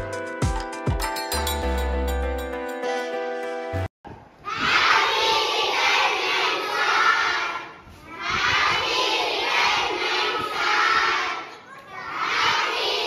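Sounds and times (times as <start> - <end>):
children shouting and cheering: 4.4 - 13.0.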